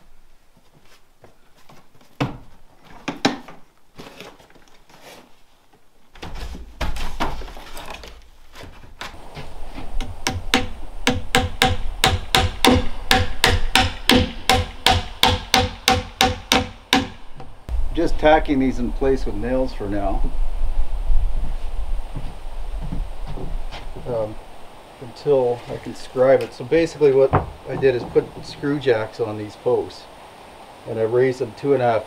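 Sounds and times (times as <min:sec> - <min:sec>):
hammer driving nails into wood: 0:10.3 - 0:17.2.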